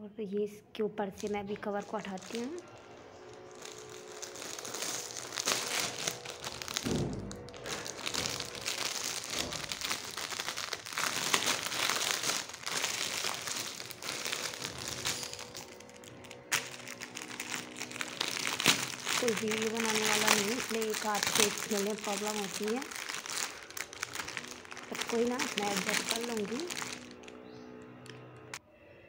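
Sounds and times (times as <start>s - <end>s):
plastic bag crinkling: 1.2s - 28.6s.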